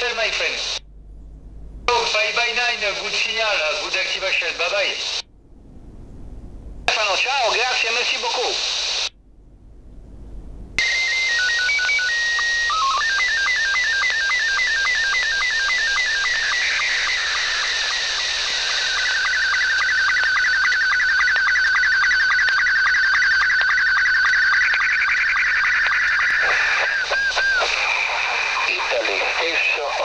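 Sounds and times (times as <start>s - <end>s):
warbling data signal tone: 10.8s - 29.7s.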